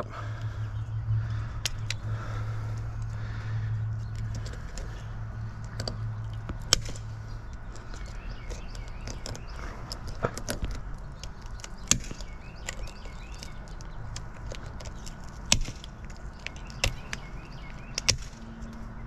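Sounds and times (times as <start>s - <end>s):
garden shears snipping scales: 5.6s - 19.0s.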